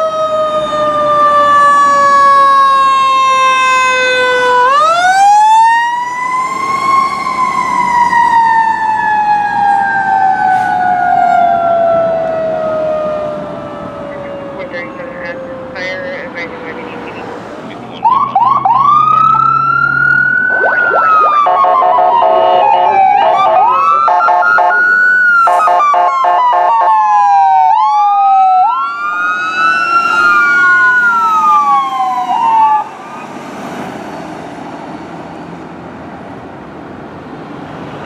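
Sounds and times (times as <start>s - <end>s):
mechanical siren wailing: 0.0s - 17.2s, 18.0s - 33.4s
road and wind noise: 0.0s - 38.0s
electronic air horn blasts: 21.3s - 24.8s.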